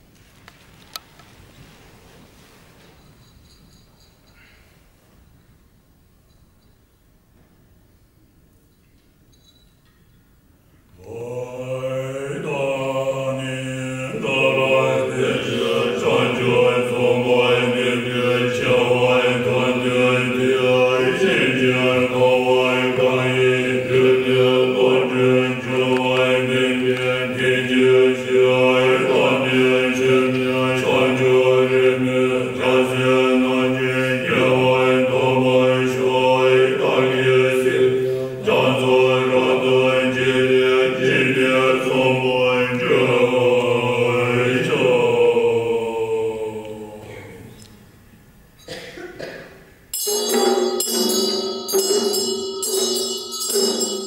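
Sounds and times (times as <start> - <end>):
monks chanting low drone: 11.0 - 47.8.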